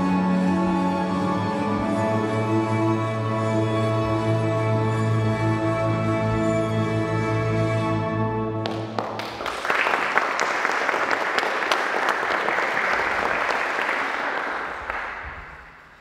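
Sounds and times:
music: 0.0 - 9.5
audience applauding: 8.6 - 16.0.

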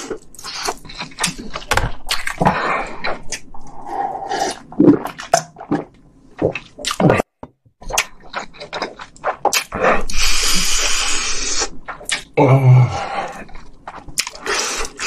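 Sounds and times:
wet chewing and smacking: 0.0 - 3.8, 7.8 - 12.4, 13.4 - 15.0.

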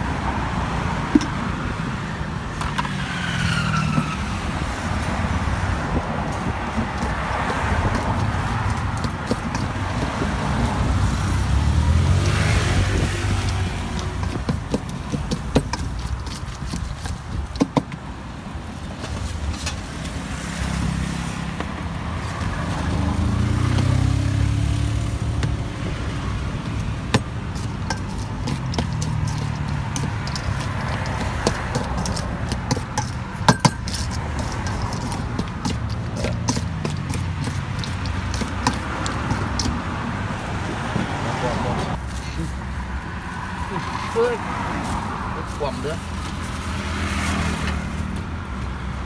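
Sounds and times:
road traffic rumbling: 0.0 - 49.0
metal spoon scraping steel bowl: 26.6 - 39.8.

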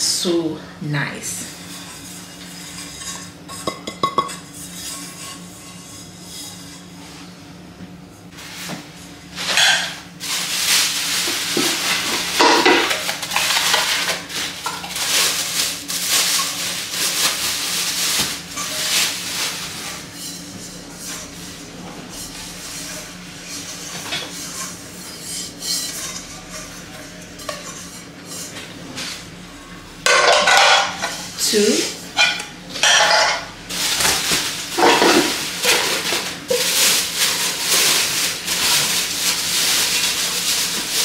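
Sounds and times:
packaging wrap crinkling: 10.2 - 20.0, 33.7 - 41.0.

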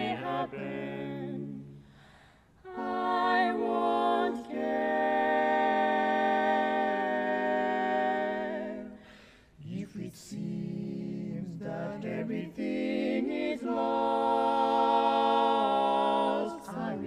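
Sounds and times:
barbershop quartet singing: 0.0 - 1.8, 2.6 - 17.0.

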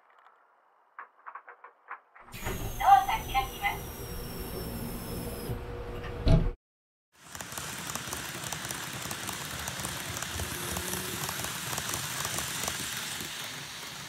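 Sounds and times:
model train clicking over rails: 7.2 - 14.0.

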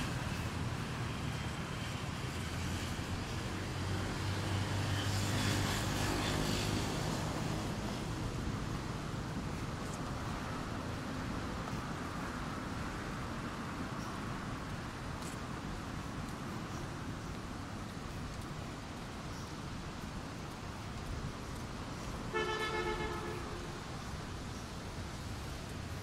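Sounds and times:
engine passing: 0.0 - 11.5
wind: 0.0 - 26.0.

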